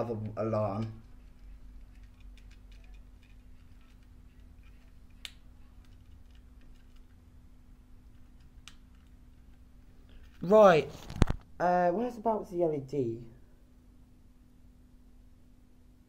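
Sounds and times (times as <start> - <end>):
low steady hum: 0.0 - 16.0
small handling clicks: 0.7 - 7.2.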